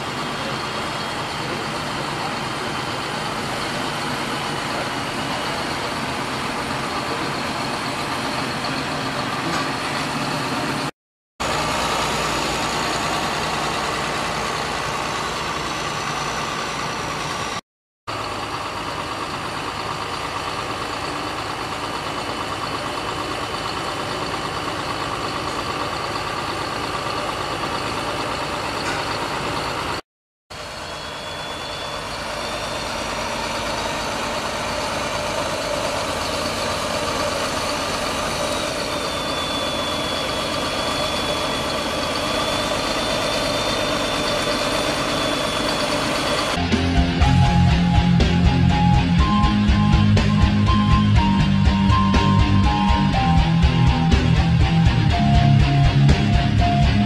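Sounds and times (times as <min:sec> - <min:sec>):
diesel engine running: 0:00.0 - 0:57.0
faint high whine: 0:30.6 - 0:33.2.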